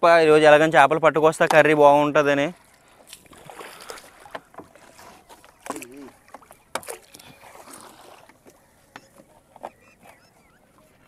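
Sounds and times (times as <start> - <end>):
light water splashes: 1.3 - 11.0.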